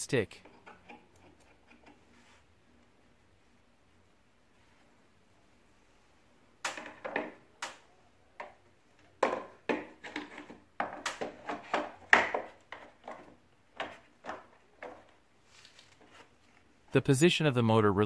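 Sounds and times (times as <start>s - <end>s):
plastic knocks and clicks: 8.4s - 15.1s.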